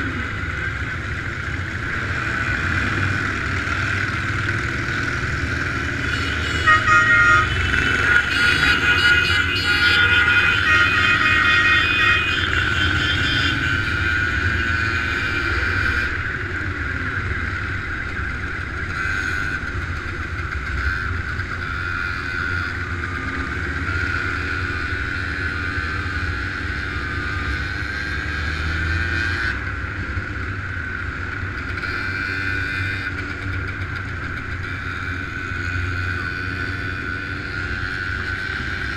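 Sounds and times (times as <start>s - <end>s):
motorcycles running: 0.0s - 38.9s
horns honking: 5.7s - 16.3s.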